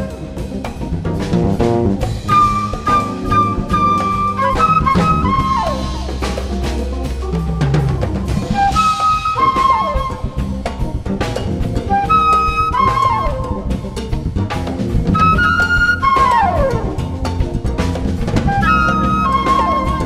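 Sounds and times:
congas: 0.0s - 20.0s
drum kit: 0.0s - 20.0s
electric bass: 0.0s - 20.0s
electric guitar: 0.0s - 20.0s
keyboard: 0.0s - 20.0s
flutes playing a melody: 2.2s - 6.4s, 8.3s - 10.8s, 11.9s - 13.8s, 15.1s - 17.2s, 18.4s - 20.0s.

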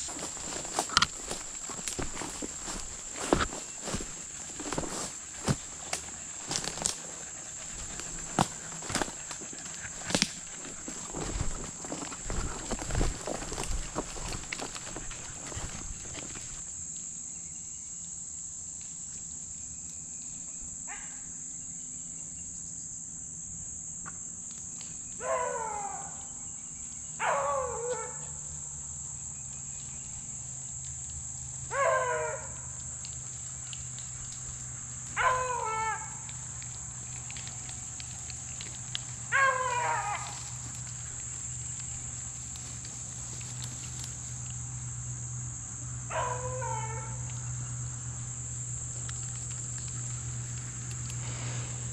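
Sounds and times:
high insect drone: 0.0s - 51.9s
dog baying: 2.0s - 16.6s, 35.2s - 36.3s, 39.3s - 40.7s.

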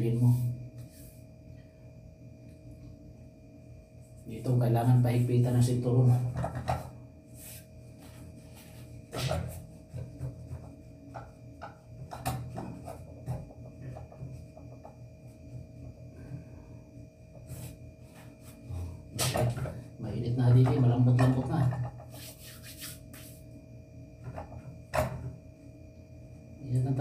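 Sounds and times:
faint steady hum: 0.0s - 27.0s
bread rubbing against pan: 22.1s - 23.4s.

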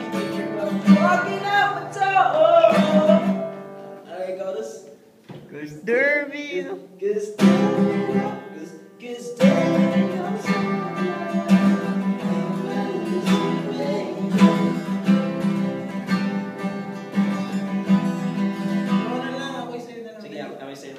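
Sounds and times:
person singing: 0.0s - 3.6s, 5.5s - 15.0s
acoustic guitars strumming: 0.0s - 4.6s, 5.3s - 19.9s.

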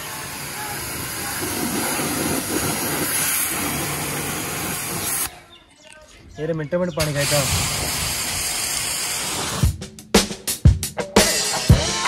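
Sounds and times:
pressure washer spraying: 0.0s - 5.3s, 7.0s - 9.8s.

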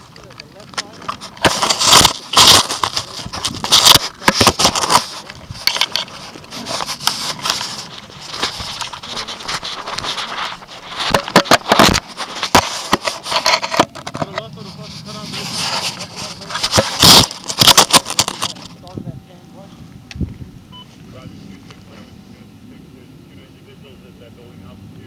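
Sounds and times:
camera handling noise: 0.0s - 14.4s, 15.6s - 18.7s.

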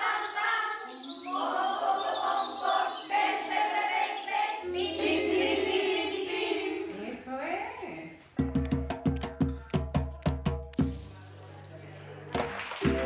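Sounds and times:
children singing: 0.0s - 7.0s.

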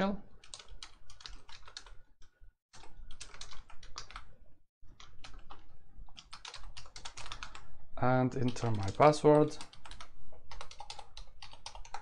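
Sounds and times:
typing on keyboard: 0.4s - 2.0s, 2.7s - 4.3s, 4.9s - 7.6s, 8.4s - 12.0s.

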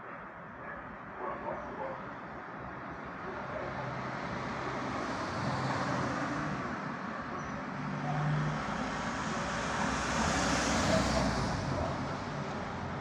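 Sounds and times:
street traffic passing: 0.0s - 13.0s.

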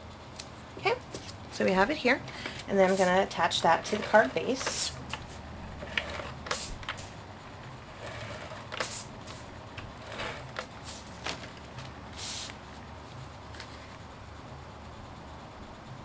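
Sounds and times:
tape gun running tape: 2.4s - 7.2s, 7.9s - 12.6s.

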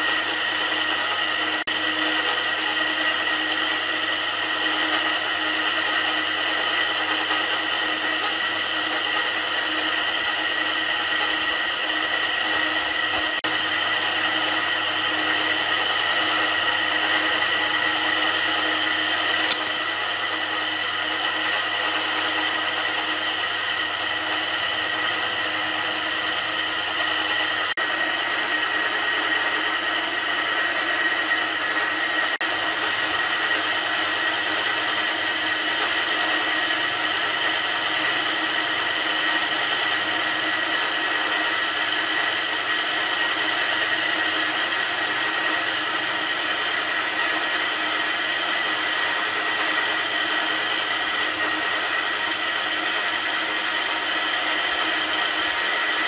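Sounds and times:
electric motor whine: 0.0s - 56.0s.

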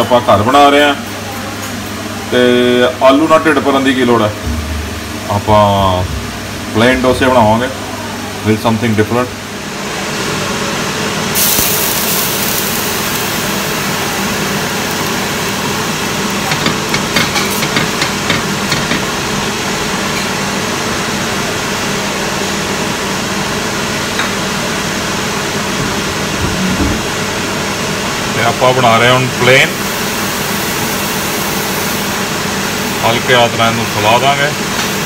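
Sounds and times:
kitchen fan hum: 0.0s - 35.0s
sizzling hiss: 11.3s - 18.5s, 29.6s - 35.0s.

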